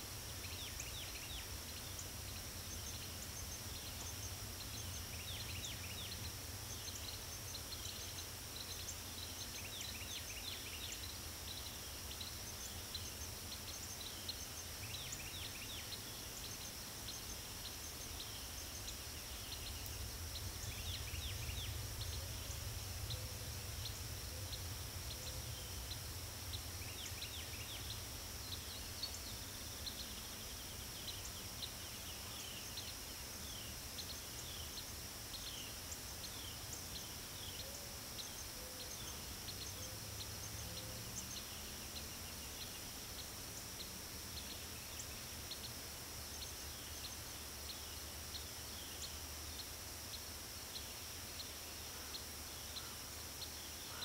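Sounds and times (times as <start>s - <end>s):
crickets trilling: 0.0s - 54.0s
low steady rumble: 19.5s - 29.1s.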